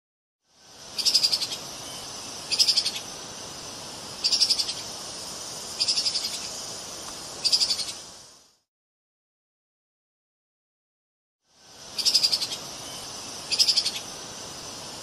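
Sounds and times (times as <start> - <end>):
steady hiss: 0.5 - 8.7, 11.5 - 15.0.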